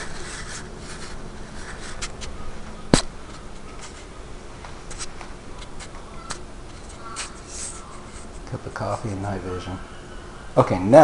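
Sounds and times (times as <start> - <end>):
faint rubbing: 0.0 - 2.5, 4.9 - 9.8.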